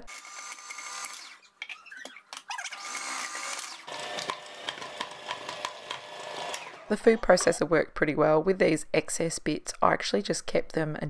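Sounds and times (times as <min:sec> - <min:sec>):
food processor motor whine: 0:00.1 - 0:01.4, 0:02.6 - 0:07.1.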